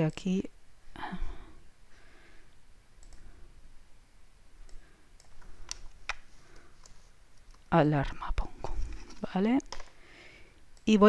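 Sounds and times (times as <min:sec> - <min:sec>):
mouse and keyboard clicks: 0:04.6 - 0:07.7.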